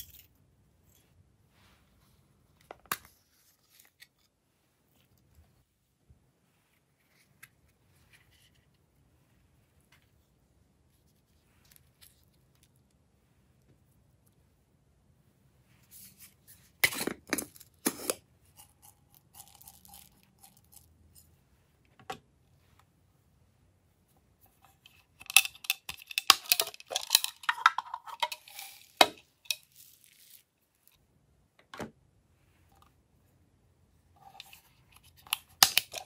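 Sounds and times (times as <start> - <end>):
beads rattling into trays: 16.8 - 21.0, 25.2 - 30.5
plastic toy containers clicking: 25.2 - 29.6, 35.2 - 36.0.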